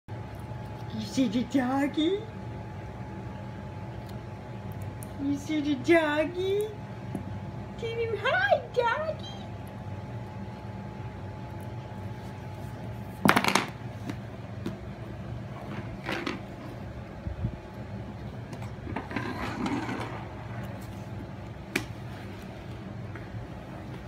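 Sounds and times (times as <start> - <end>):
steady low hum: 0.1 - 24.0.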